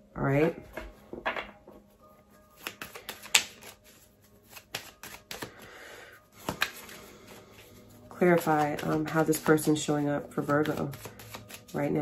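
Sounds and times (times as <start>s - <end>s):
soft background music: 0.0s - 12.0s
cards rustling in a shuffle: 1.8s - 12.0s
cards clicking and flicking: 2.6s - 5.7s, 6.4s - 7.6s, 8.2s - 11.8s.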